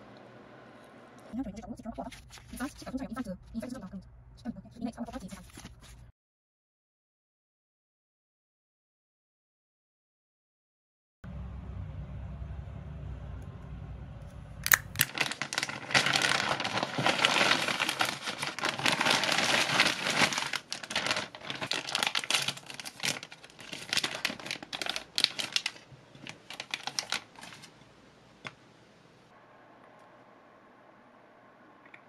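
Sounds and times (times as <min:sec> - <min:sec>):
wrapper crinkling and tearing: 0:14.6 - 0:27.8.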